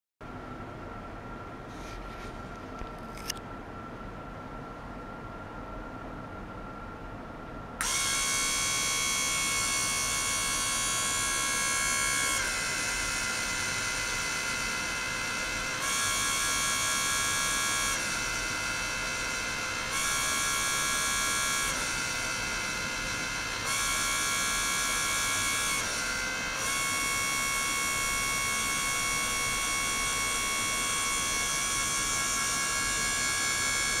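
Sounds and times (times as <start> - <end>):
high-pitched electronic whine: 7.8 - 34.0.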